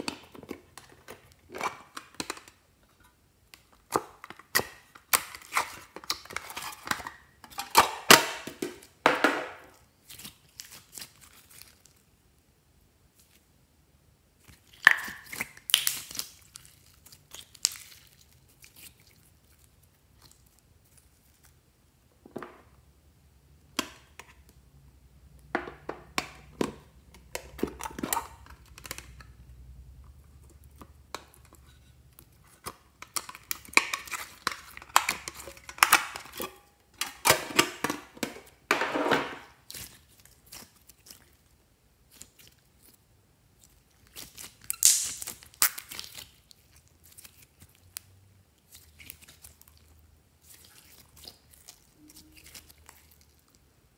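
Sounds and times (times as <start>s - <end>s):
slime crackling and squelching: 9.6s - 12.1s, 14.4s - 21.7s, 26.2s - 38.7s, 39.4s - 53.7s.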